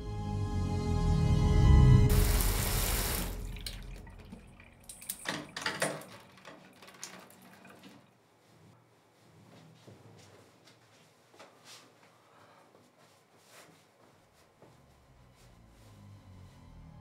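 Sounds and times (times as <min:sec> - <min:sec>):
running water: 0:02.1 - 0:08.1
water drips and splashes: 0:02.1 - 0:08.1.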